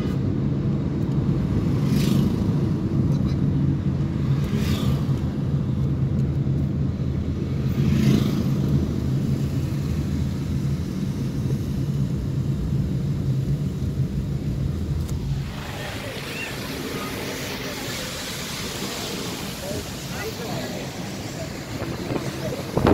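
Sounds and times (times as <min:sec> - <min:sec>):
car engine and road drone: 0:00.0 - 0:22.9.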